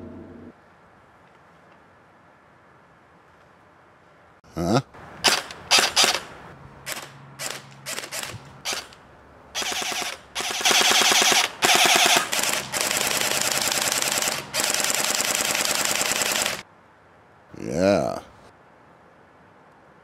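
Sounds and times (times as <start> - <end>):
bb rifle full-auto bursts: 5.2 - 6.3, 6.9 - 9.0, 9.6 - 16.6
bb rifle single shots: 5.2 - 6.3, 9.6 - 16.6.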